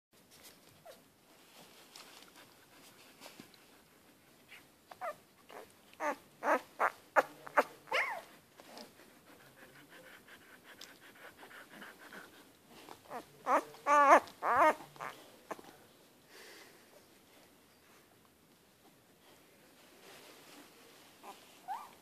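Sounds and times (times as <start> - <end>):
puppy whimpering and squeaking: 5.0 - 8.3, 13.1 - 15.6, 21.2 - 22.0.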